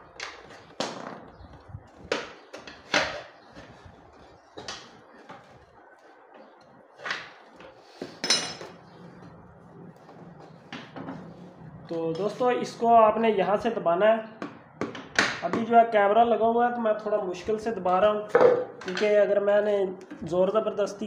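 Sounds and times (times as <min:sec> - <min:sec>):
metal tools knocking on metal: 0:08.2 - 0:08.8.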